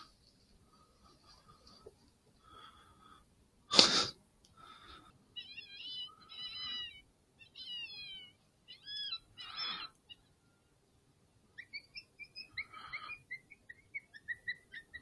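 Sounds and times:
high wavering animal calls: 0:05.3 - 0:10.6, 0:11.5 - 0:15.0.

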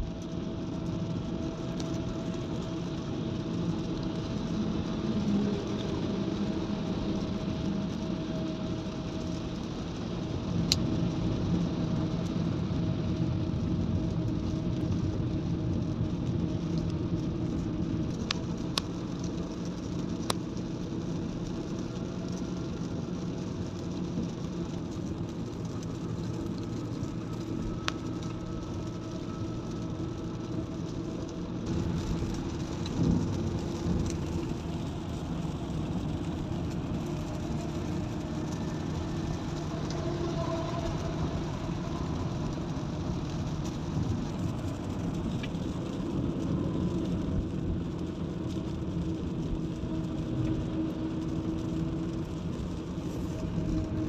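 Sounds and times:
car engine hum: 0:00.0 - 0:54.0
tyre hiss on wet road: 0:17.5 - 0:54.0.

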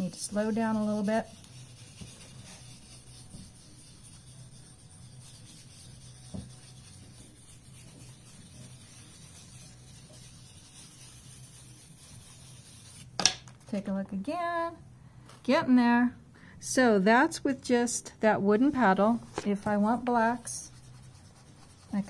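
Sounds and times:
wooden spoon rubbing on paper: 0:00.0 - 0:13.2, 0:19.4 - 0:22.0.

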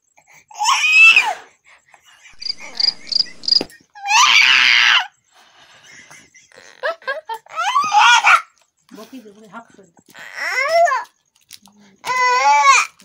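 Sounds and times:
toddler crying loudly: 0:00.5 - 0:01.4, 0:02.4 - 0:03.2, 0:04.0 - 0:05.1, 0:07.5 - 0:08.5, 0:10.2 - 0:11.0, 0:12.0 - 0:13.0.

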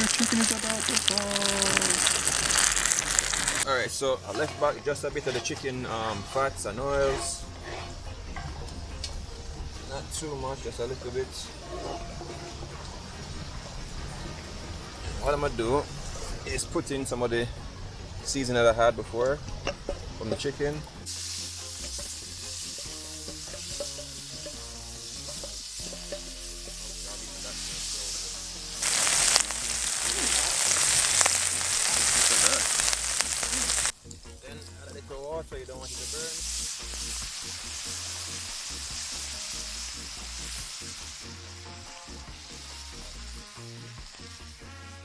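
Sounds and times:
fat sizzling in a skillet: 0:00.0 - 0:16.8, 0:18.2 - 0:45.0
spoon scraping a metal bowl: 0:06.2 - 0:08.2.

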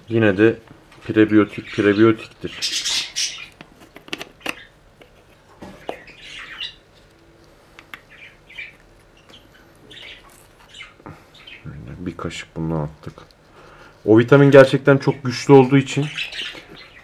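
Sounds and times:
pet birds chirping and squawking: 0:01.0 - 0:07.1, 0:07.9 - 0:12.2, 0:15.0 - 0:17.0.

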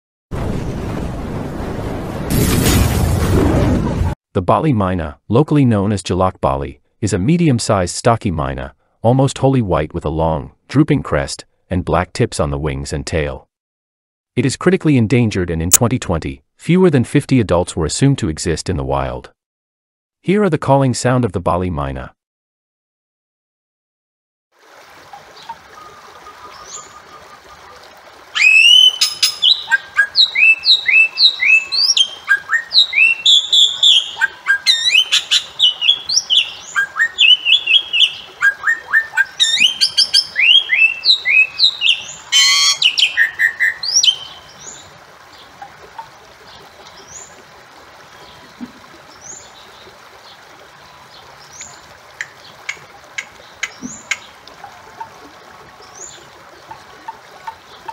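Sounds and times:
bird whistling calls: 0:28.4 - 0:44.6
harsh bird notes: 0:28.4 - 0:44.6.

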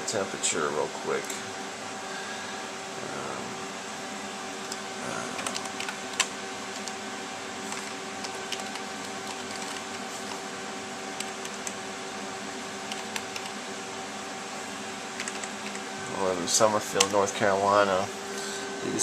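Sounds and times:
cooling fans humming: 0:00.0 - 0:19.0
computer keys tapping: 0:05.4 - 0:07.0, 0:07.7 - 0:10.4, 0:11.2 - 0:11.8, 0:12.9 - 0:13.6, 0:15.2 - 0:15.9.

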